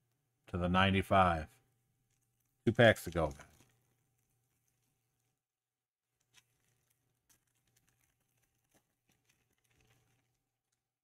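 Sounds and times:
foil pack crinkling and clicking: 0:02.1 - 0:05.3, 0:06.1 - 0:10.9.

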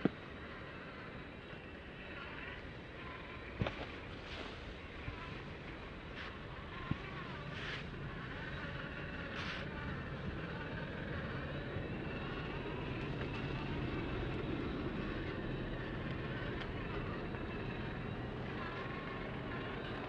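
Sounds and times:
small electric motor whine: 0:00.0 - 0:20.0.

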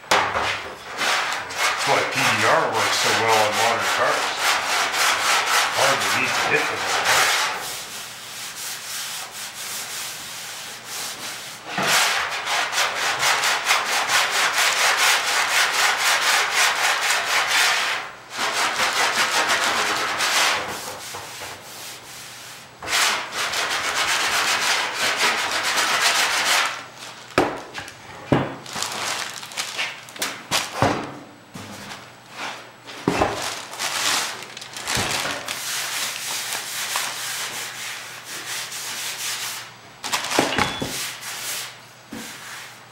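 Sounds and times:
hand sanding steel: 0:01.0 - 0:26.9, 0:35.4 - 0:39.7, 0:40.9 - 0:42.9.

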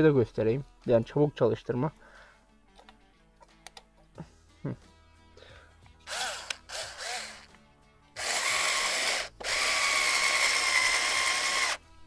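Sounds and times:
electric screwdriver whirring: 0:06.1 - 0:07.5, 0:08.2 - 0:11.8.

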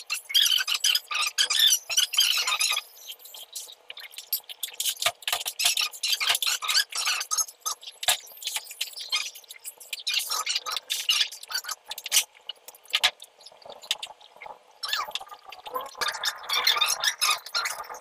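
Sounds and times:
plastic pipe squeaks and clicks: 0:03.4 - 0:14.2.

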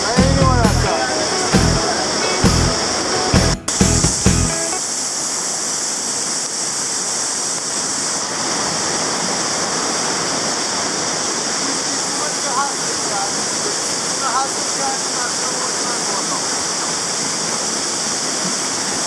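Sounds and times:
music with bass beat: 0:00.0 - 0:00.9, 0:01.5 - 0:01.8, 0:02.4 - 0:02.8, 0:03.4 - 0:04.6
rushing flowing water: 0:00.0 - 0:19.0.

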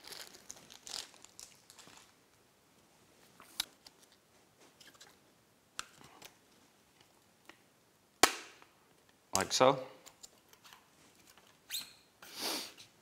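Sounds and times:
light plastic rustling: 0:00.0 - 0:02.2.

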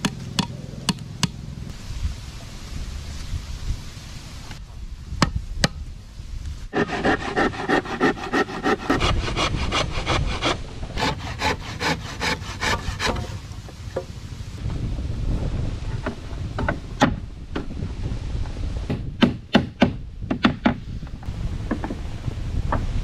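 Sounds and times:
hand saw cutting wood: 0:06.7 - 0:13.4.

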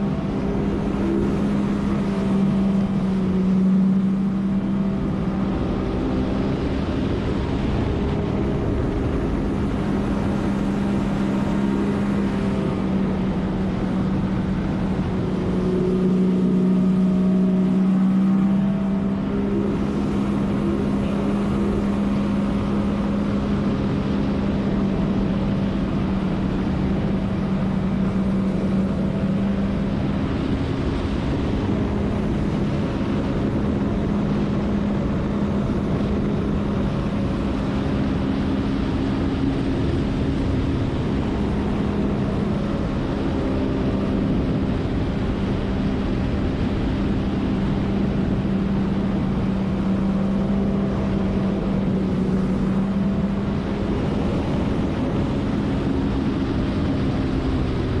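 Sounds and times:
jet ski engine drone: 0:00.0 - 0:58.0
wind: 0:00.0 - 0:58.0.

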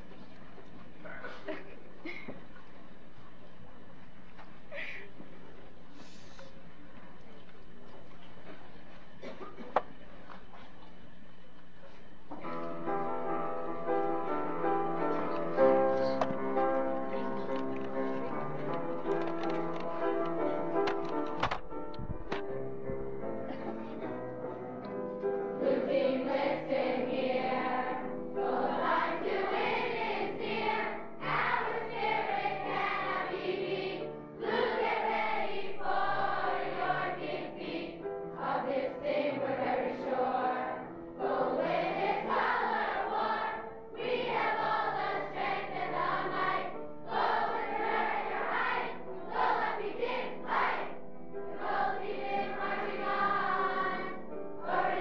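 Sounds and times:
group singing in chorus: 0:25.6 - 0:55.0.

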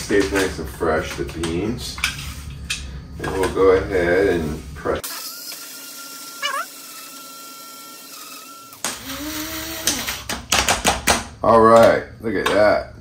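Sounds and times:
coffee grinder whining: 0:05.0 - 0:10.3.

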